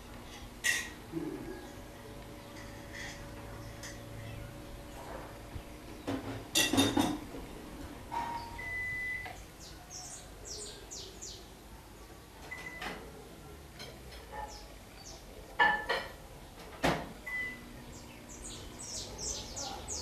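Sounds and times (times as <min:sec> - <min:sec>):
small bird chirping: 0:17.3 - 0:20.0.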